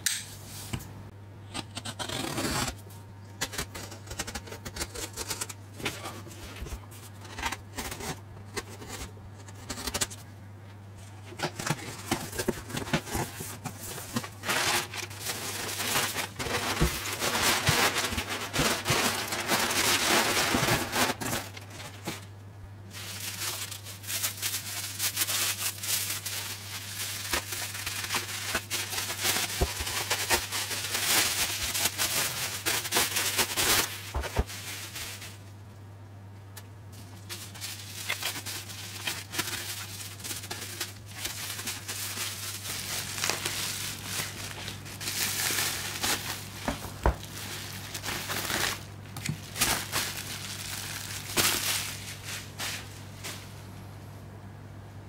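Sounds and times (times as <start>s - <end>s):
packing paper rustling: 11.2s - 35.6s, 36.9s - 53.7s
bubble wrap crackling: 11.6s - 35.5s, 36.9s - 53.7s.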